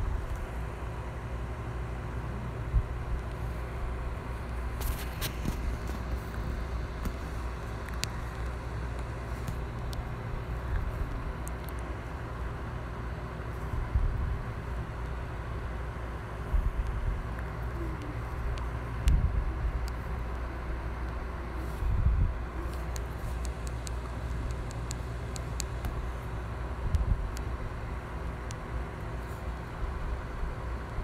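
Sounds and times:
low rumble with hiss: 0.0 - 31.0
faint clicks: 7.0 - 10.1, 10.7 - 11.9, 22.6 - 26.0.

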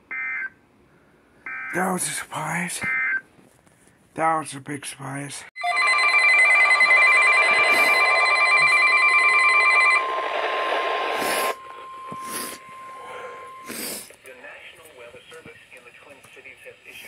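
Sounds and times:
pulsing emergency alert tones: 5.6 - 14.0
steady single tone: 9.2 - 13.8.

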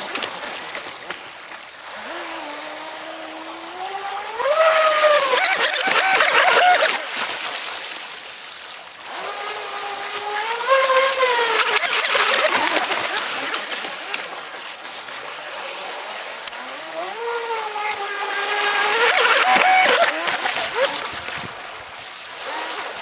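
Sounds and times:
electric motor whining: 1.8 - 7.1, 9.0 - 14.4, 15.7 - 21.4.

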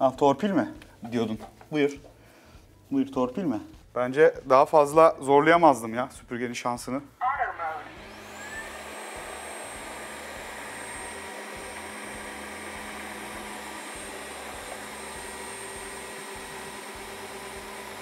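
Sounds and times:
floor vacuum running: 7.5 - 18.0.

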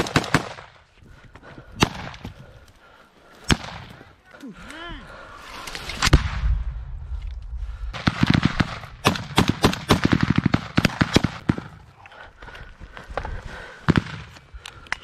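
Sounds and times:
rifle shots: 0.0 - 0.7, 7.9 - 11.8
low rumble: 5.7 - 9.1.

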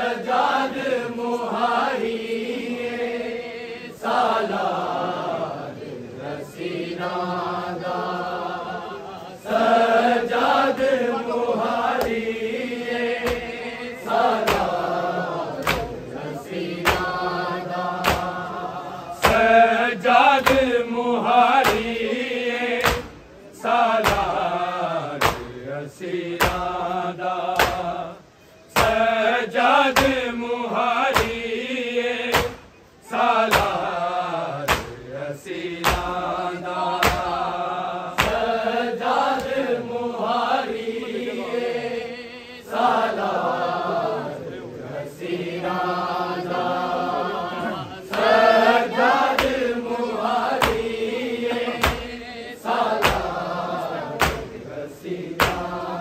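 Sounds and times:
men chanting a lament: 0.0 - 56.0
rhythmic chest slapping: 11.8 - 25.6, 26.3 - 30.4, 31.0 - 31.6, 32.2 - 40.5, 47.6 - 56.0.

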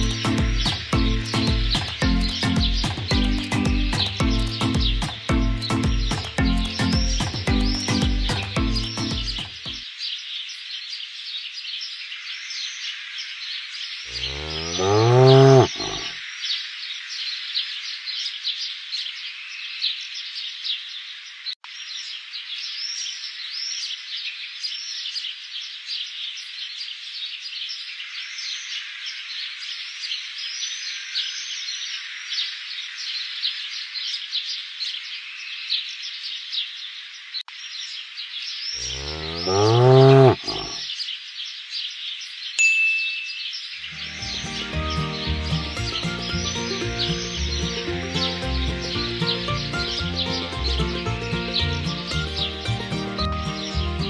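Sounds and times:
birds chirping: 0.0 - 54.0
cow mooing: 14.1 - 16.1, 38.8 - 40.8.

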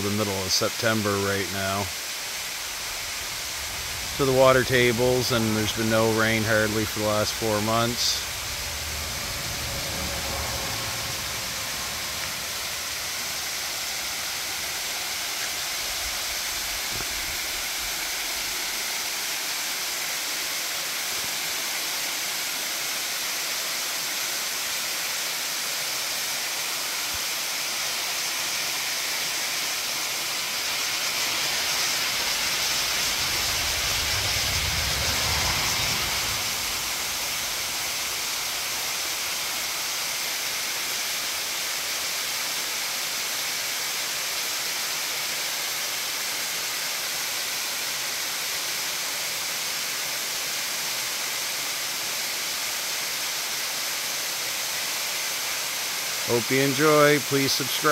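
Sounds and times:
small waterfall rushing: 0.0 - 57.9
low rumble: 2.4 - 14.8, 31.5 - 38.8.

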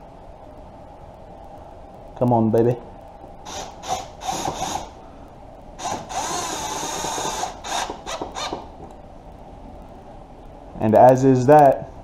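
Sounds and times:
cordless drill driving screws: 3.5 - 5.0, 5.8 - 8.7.

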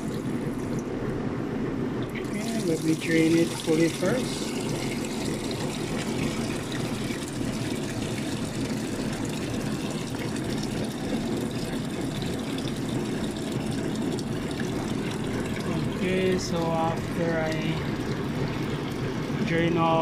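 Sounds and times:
water pouring and splashing: 2.1 - 20.0.

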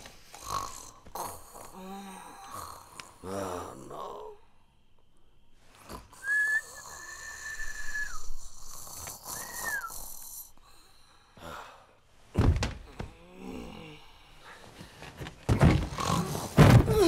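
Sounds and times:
faint hiss of breath: 5.5 - 12.1
person whistling: 6.2 - 8.6, 9.3 - 10.3.

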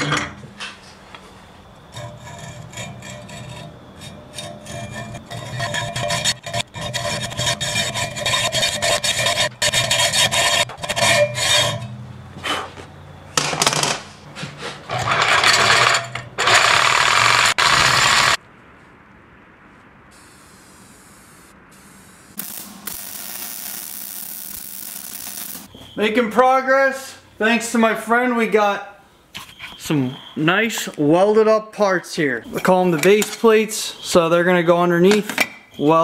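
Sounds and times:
reciprocating saw cutting steel: 1.9 - 12.0, 14.9 - 18.4
hacksaw cutting steel: 2.0 - 12.0, 14.9 - 18.4.

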